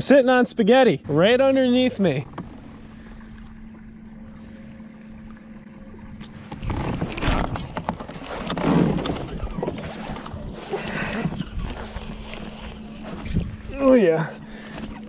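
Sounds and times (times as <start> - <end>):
faint steady hum: 0.9 - 7.6.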